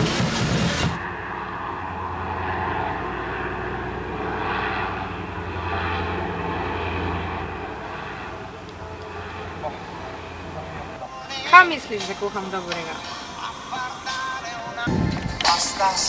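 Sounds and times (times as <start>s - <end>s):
music: 0.0s - 1.0s, 11.1s - 16.0s
airship propeller engines droning: 0.0s - 16.0s.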